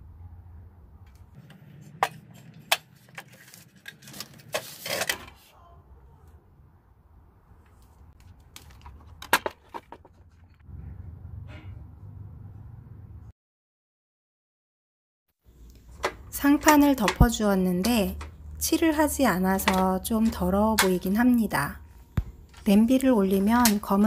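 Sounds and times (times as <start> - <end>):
rustling scrape: 1.4 - 5.5.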